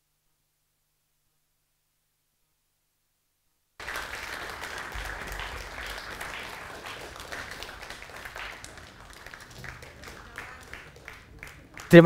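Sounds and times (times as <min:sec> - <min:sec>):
audience applause: 0:03.8 - 0:12.0.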